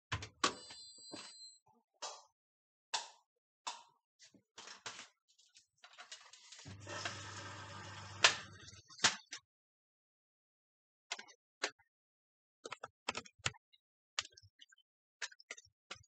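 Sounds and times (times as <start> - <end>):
washing machine mains hum: 6.7 - 8.9.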